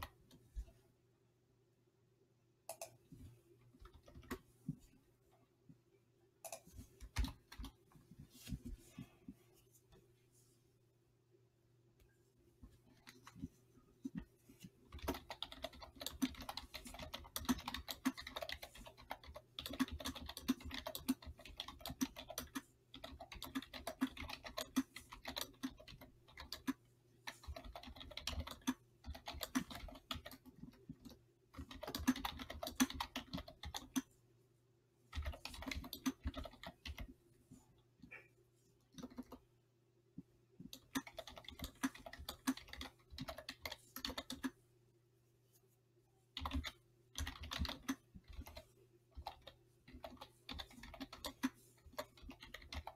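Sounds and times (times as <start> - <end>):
typing on computer keyboard: 6.4 - 7.8, 14.9 - 34.1, 35.1 - 37.1, 39.0 - 39.4, 40.7 - 44.6, 46.4 - 52.9.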